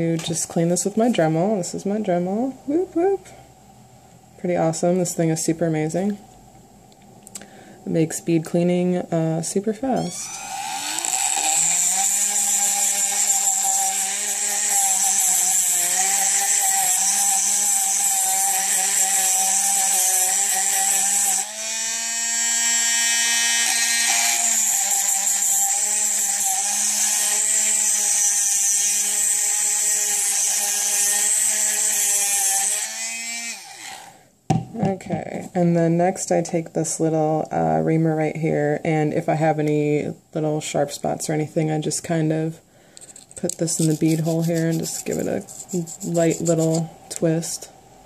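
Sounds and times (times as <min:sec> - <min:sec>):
rotary tool whining: 0:10.0 - 0:34.2.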